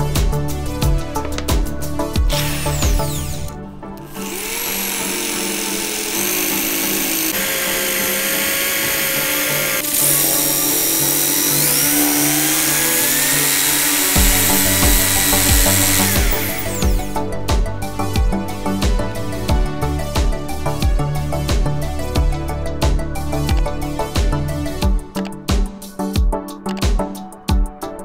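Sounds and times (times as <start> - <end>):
background music: 0.0 - 28.0
electric drill whine: 2.2 - 17.3
sanding block hissing on cardboard: 4.6 - 16.8.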